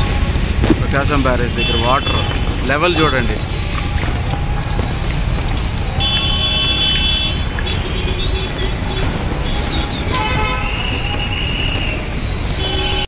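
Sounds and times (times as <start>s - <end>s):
rushing floodwater: 0.0s - 13.0s
wind on microphone: 0.1s - 6.2s
vehicle horns honking: 0.6s - 3.7s, 5.9s - 13.0s.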